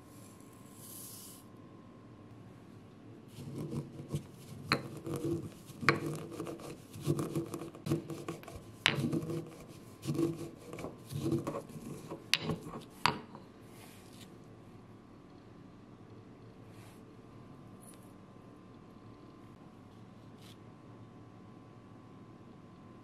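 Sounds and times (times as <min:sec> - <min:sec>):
pestle grinding in stone mortar: 0:03.4 - 0:13.3
pestle clicking on stone: 0:04.6 - 0:13.4.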